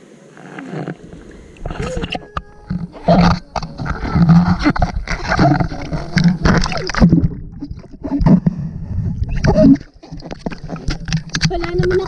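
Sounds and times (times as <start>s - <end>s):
water gurgling: 0.0s - 12.0s
seawater sloshing and splashing: 2.7s - 8.4s, 9.2s - 12.0s.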